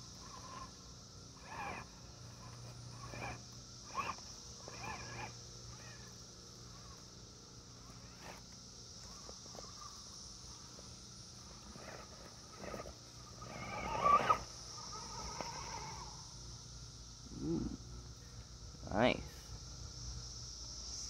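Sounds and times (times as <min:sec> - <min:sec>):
electric motor whining: 0:00.0 - 0:09.8, 0:10.4 - 0:16.4.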